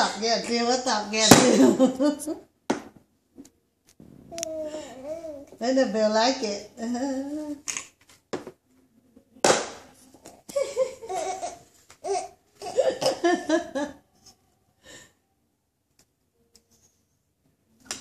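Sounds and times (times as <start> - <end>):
baby laughing: 10.5 - 13.6.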